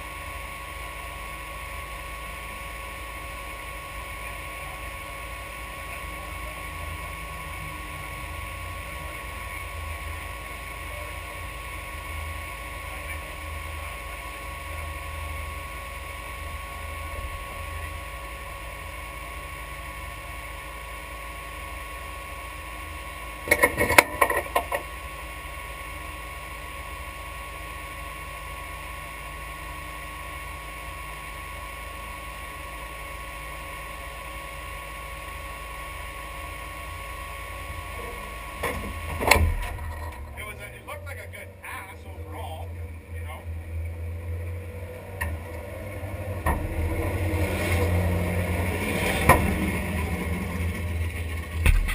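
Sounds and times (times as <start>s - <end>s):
car cabin mechanical hum: 34.0s - 51.9s.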